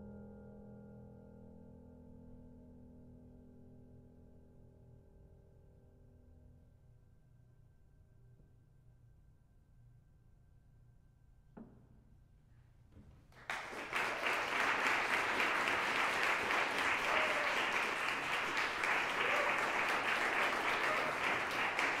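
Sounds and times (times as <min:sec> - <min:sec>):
audience applause: 0:13.4 - 0:22.0.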